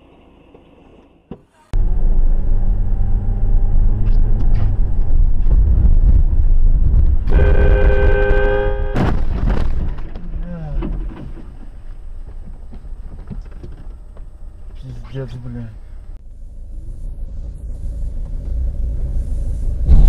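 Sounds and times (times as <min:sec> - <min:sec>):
vehicle road noise: 0:00.0 - 0:20.0
vehicle horn: 0:07.3 - 0:09.1.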